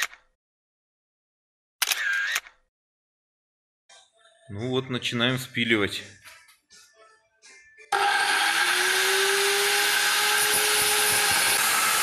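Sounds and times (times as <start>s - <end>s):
angle grinder cutting steel: 8.0s - 12.0s.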